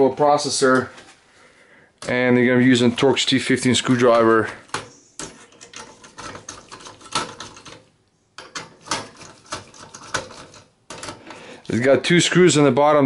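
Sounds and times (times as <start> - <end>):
screwdriver clicks and metal scrapes: 3.9 - 11.4.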